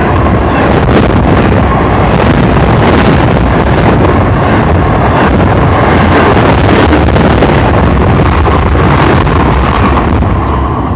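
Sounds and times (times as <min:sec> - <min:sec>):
freight train wheels rumbling on rails: 0:00.0 - 0:10.9
wind buffeting microphone: 0:00.0 - 0:10.9.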